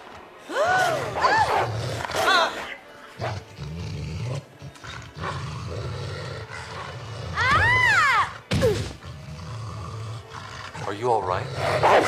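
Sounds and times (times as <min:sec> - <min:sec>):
cartoon hyenas growling: 0:00.8 - 0:12.0.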